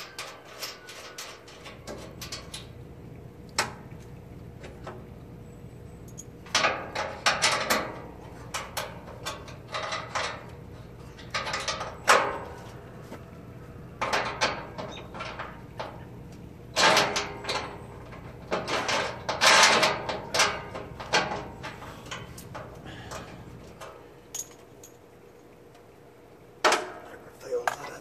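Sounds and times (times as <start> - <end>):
hard parts clattering and scraping: 0.0 - 2.8, 6.1 - 13.3, 13.9 - 25.1.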